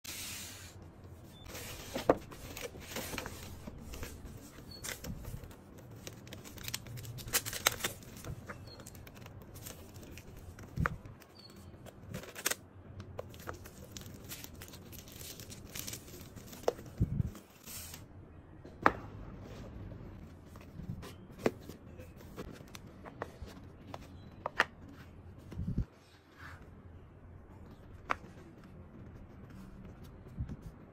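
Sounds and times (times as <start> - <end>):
shrink-wrap tearing and crinkling: 6.1 - 8.2.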